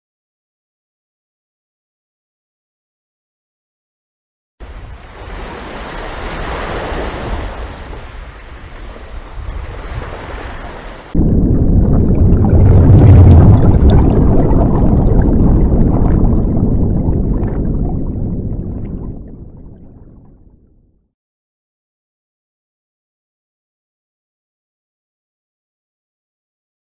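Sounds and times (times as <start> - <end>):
sea and wind rushing: 4.6 - 20.6
deep rumbling rush: 11.1 - 20.8.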